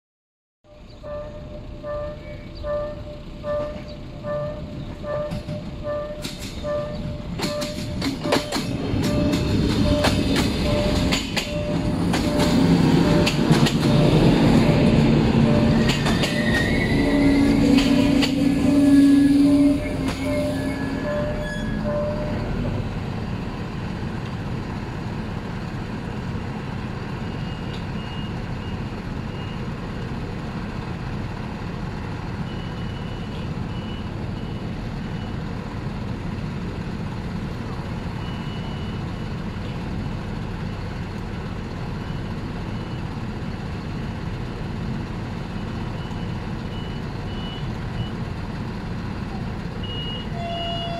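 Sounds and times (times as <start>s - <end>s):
brake squeal: 0.7s - 22.8s, 49.8s - 50.9s
train wheel clicks: 5.3s - 6.6s, 7.3s - 12.6s, 13.2s - 13.9s
diesel engine idling: 20.8s - 50.9s.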